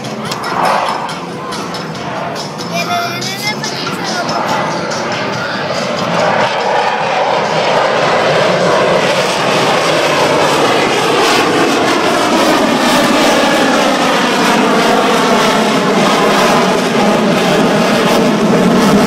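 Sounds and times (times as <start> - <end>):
fighter jet flying overhead: 0.0 - 19.0.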